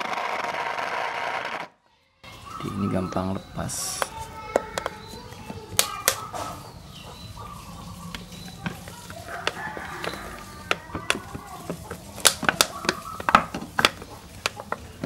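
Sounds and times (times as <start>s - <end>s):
plastic bottle crackling: 8.1s - 15.0s
rooster crowing: 9.2s - 10.7s.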